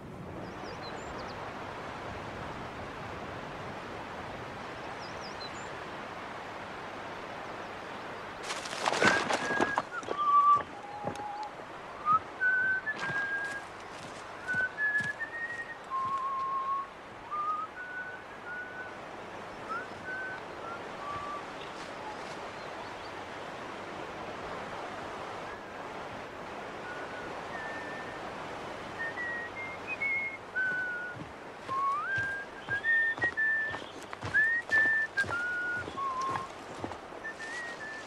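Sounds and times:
person whistling a tune: 29.1 - 36.5.

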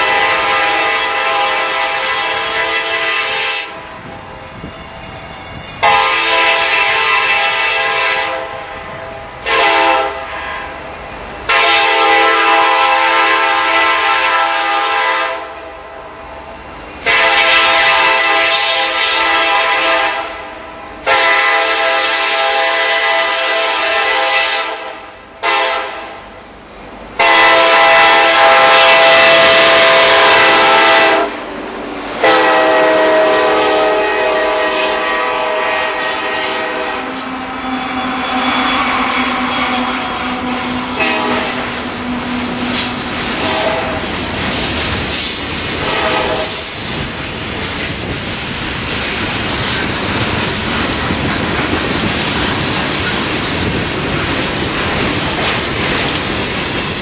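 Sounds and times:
locomotive air horn blasts: 0.0 - 3.8, 5.8 - 10.7, 11.5 - 15.8, 17.0 - 26.3, 27.2 - 31.5, 32.2 - 44.1, 45.8 - 46.8
train wheels rolling: 0.0 - 14.8, 25.4 - 57.0
locomotive engines: 3.3 - 7.0, 27.9 - 57.0.

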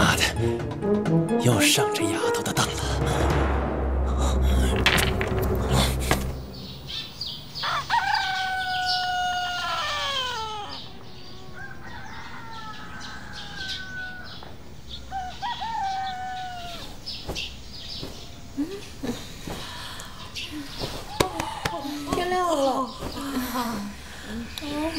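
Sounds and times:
rooster crowing: 7.6 - 17.1.

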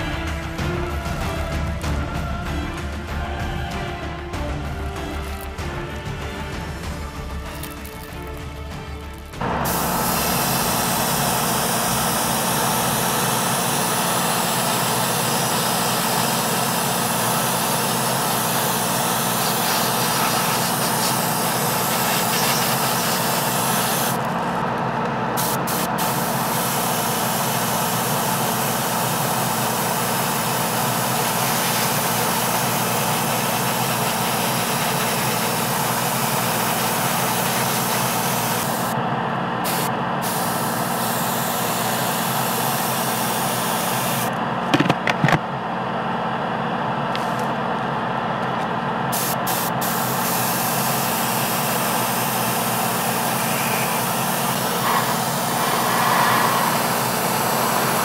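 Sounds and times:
air compressor hum: 0.0 - 58.0
airbrush spraying hiss: 9.5 - 24.3, 25.4 - 39.0, 39.6 - 44.3, 49.1 - 58.0.

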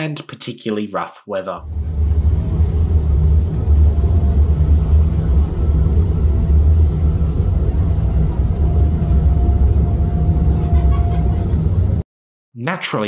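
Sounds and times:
ferry low rumble: 1.6 - 12.0.

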